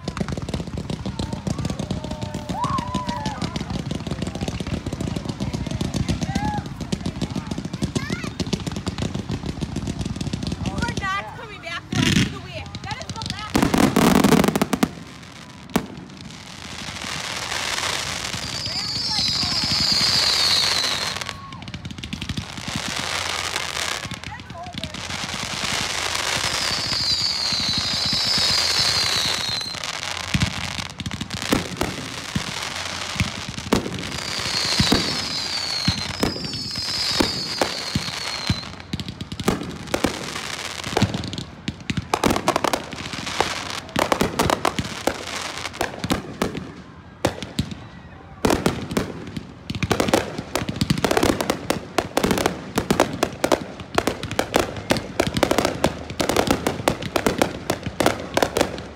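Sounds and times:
fireworks launching and bursting: 0.0s - 58.9s
fireworks whistles: 17.4s - 24.1s, 25.6s - 31.0s, 31.6s - 39.5s.

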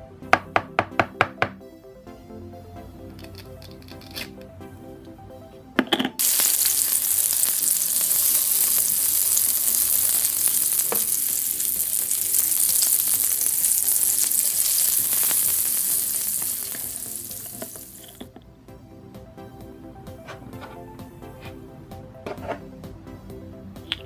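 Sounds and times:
food sizzling on a grill: 6.2s - 18.2s.

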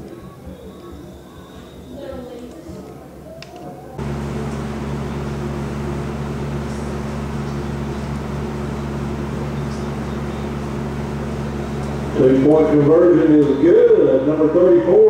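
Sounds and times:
electrical hum: 4.0s - 14.9s.

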